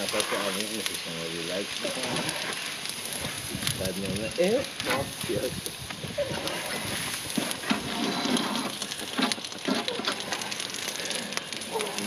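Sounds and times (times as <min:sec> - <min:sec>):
water sizzling on hot griddle: 0:00.0 - 0:12.0
grill brush scraping: 0:06.2 - 0:09.4.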